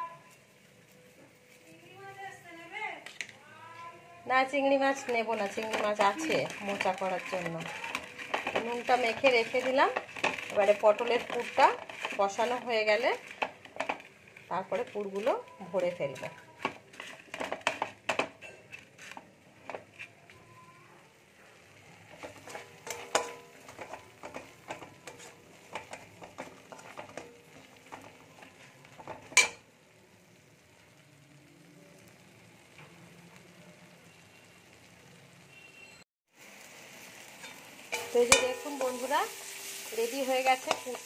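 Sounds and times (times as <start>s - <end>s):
light sizzle: 0.0s - 41.0s
spatula scraping and knocking pan: 4.5s - 20.4s, 22.1s - 29.6s, 37.4s - 41.0s.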